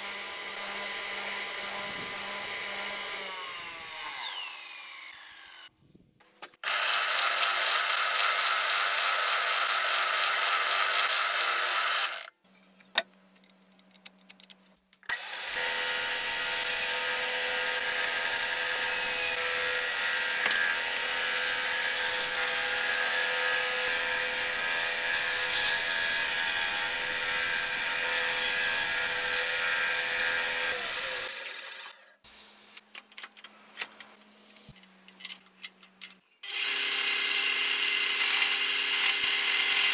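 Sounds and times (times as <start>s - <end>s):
band saw cutting log: 0.0s - 5.7s, 15.1s - 32.1s.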